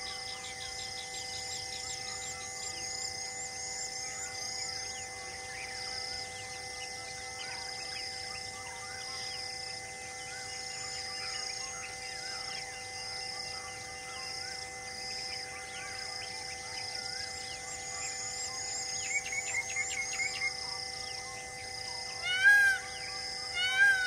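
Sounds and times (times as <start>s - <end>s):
steady hum of even tones: 0.0s - 24.0s
birds chirping and calling: 22.1s - 24.0s.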